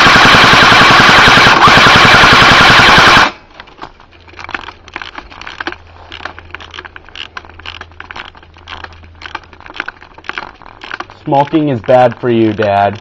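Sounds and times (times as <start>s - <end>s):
airsoft gun full-auto burst: 0.0s - 3.4s
steady low hum: 0.0s - 13.0s
faint crackling and clicking: 3.5s - 13.0s.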